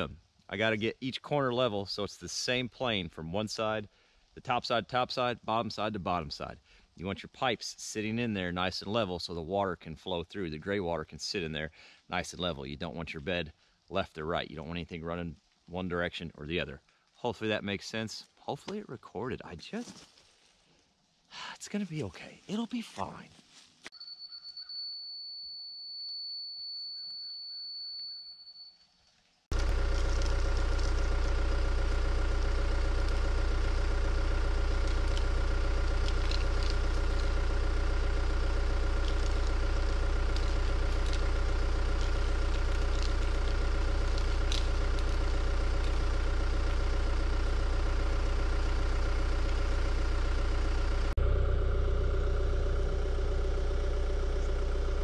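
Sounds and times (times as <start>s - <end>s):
excavator diesel engine running: 29.5s - 55.0s.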